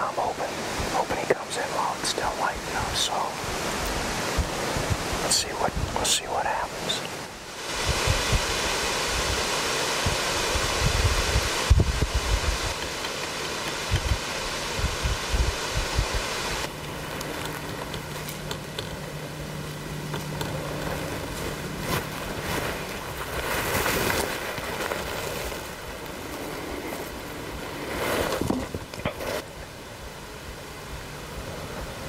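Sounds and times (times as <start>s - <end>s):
wind buffeting microphone: 2.2s - 18.0s.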